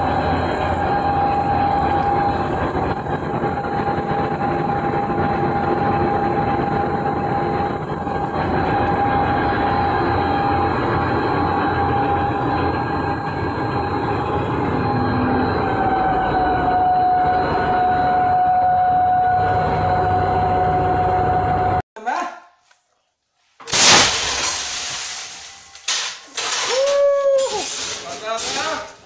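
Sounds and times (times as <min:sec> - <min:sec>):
high whine: 0:00.0 - 0:21.8
mechanical drone: 0:00.0 - 0:21.8.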